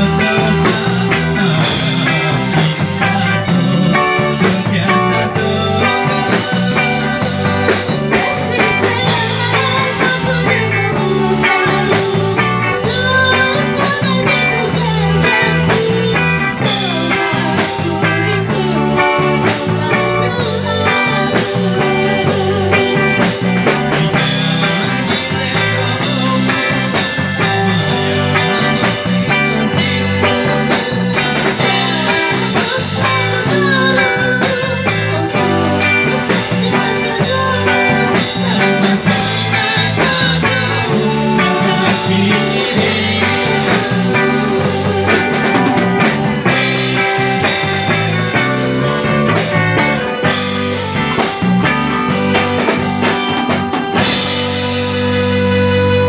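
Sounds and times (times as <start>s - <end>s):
woman singing into microphone: 0.0s - 27.2s, 31.3s - 47.0s
live band guitar and drums: 0.0s - 56.0s.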